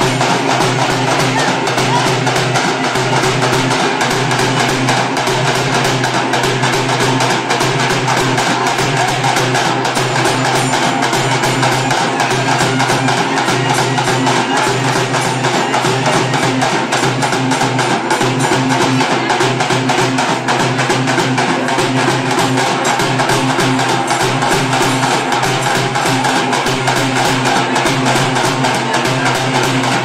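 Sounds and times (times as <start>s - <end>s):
frame drums beaten fast: 0.0s - 30.0s.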